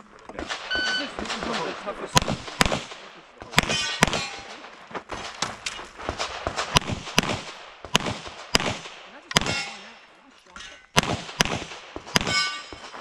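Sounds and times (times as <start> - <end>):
pistol shots: 0.4 - 10.0, 10.9 - 13.0
metallic ringing: 3.6 - 4.6, 9.4 - 10.9, 12.2 - 13.0.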